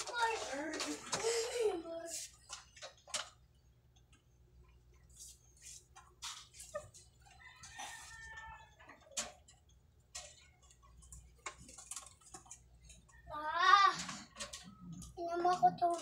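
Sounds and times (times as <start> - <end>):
cages clicking and knocking: 0.0 - 4.9, 5.9 - 16.0
rooster crowing: 7.3 - 9.0.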